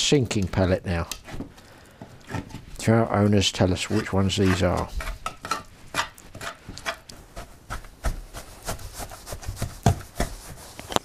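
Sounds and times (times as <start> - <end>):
paste being mixed in container: 3.2 - 11.0.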